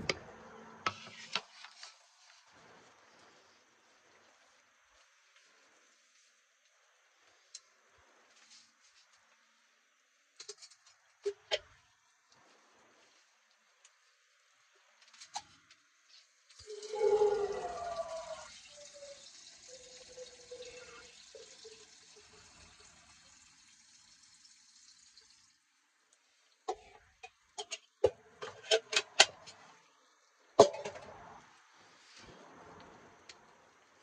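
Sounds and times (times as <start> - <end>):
water running from sink tap: 16.5 - 25.6.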